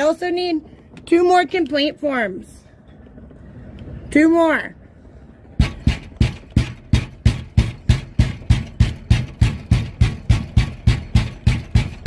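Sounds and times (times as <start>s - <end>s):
hand pounding on glass door: 5.6s - 12.0s.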